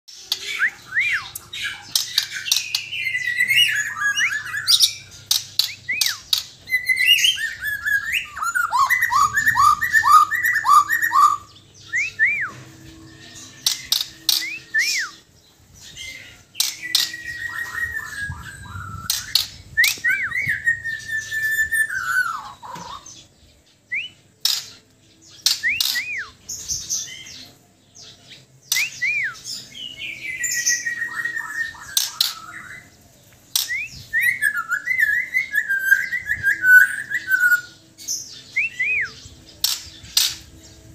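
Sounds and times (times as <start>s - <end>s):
bird singing whistled phrases: 0.3s - 15.3s, 16.6s - 23.0s, 25.4s - 26.4s, 28.7s - 32.9s, 33.6s - 37.8s, 38.5s - 39.8s.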